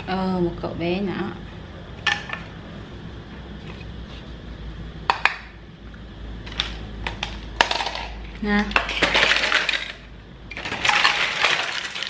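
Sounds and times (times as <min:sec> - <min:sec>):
plastic toys clattering in basket: 0:06.5 - 0:12.0.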